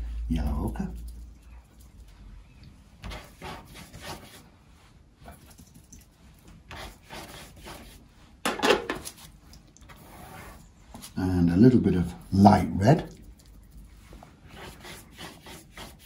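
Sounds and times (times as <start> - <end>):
brush dragged across paper: 9.9 - 11.2, 13.9 - 16.0.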